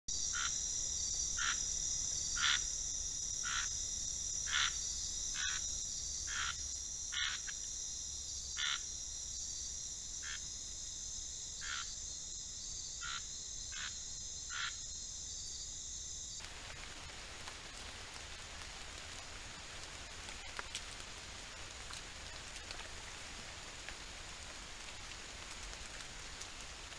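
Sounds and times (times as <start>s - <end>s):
insects trilling: 0.1s - 26.9s
frog calling: 0.2s - 0.6s, 1.3s - 1.7s, 2.3s - 2.7s, 3.4s - 3.8s, 4.4s - 7.6s, 8.5s - 9.0s, 10.2s - 10.5s, 11.6s - 12.0s, 13.0s - 14.9s
even hiss: 10.0s - 26.9s.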